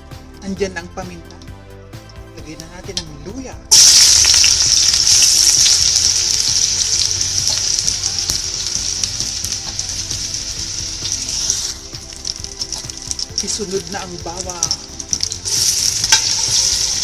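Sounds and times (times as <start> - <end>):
ginger sizzling in hot oil: 3.7 - 17.0.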